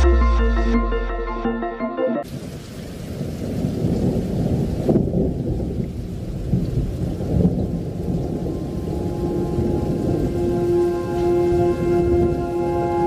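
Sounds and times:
electronic music sting: 0.0s - 2.2s
rolling thunder rumble: 2.2s - 13.0s
steady rain: 2.2s - 13.0s.

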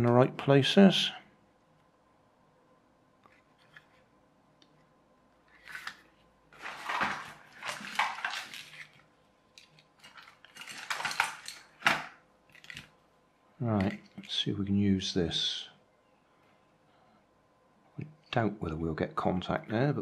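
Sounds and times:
plastic and metal items clattering: 5.6s - 9.0s, 9.6s - 12.9s.

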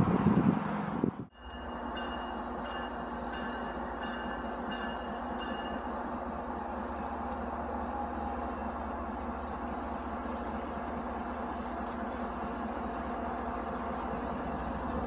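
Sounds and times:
wind buffeting microphone: 0.0s - 1.3s
freight train rumble: 0.0s - 15.0s.

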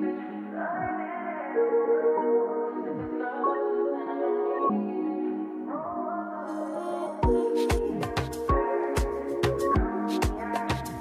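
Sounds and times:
electronic music with steady beat: 0.0s - 1.2s, 2.2s - 4.9s, 7.2s - 11.0s.

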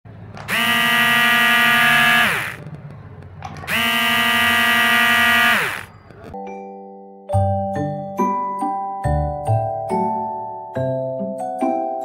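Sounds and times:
toy truck motors whirring: 0.4s - 2.7s, 3.5s - 6.3s.

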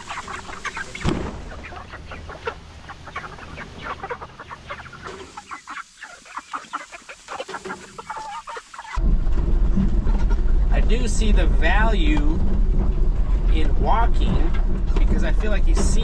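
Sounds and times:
hens clucking: 0.0s - 9.0s, 9.8s - 16.0s
thump: 1.0s - 1.4s.

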